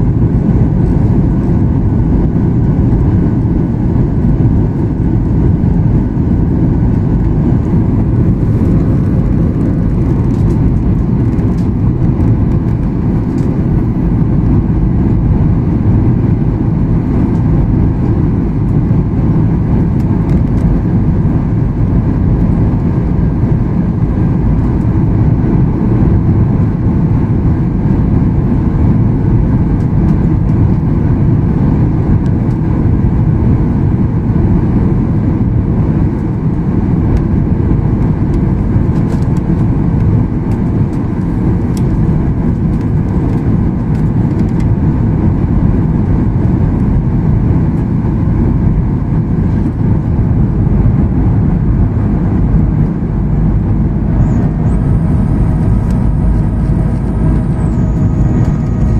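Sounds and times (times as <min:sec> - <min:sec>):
jet engines rumbling in cabin: 0:00.0 - 0:58.9.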